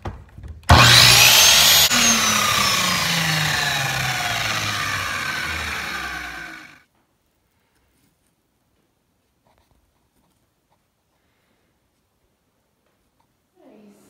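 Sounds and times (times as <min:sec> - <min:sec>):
miter saw motor whine: 0:00.7 - 0:06.8.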